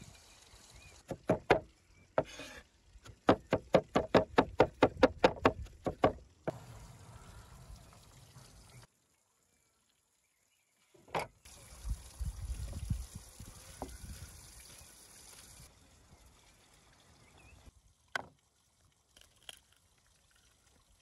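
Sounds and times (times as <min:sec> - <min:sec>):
cleaver chopping on wooden board: 0:01.1 - 0:01.6, 0:03.2 - 0:06.2.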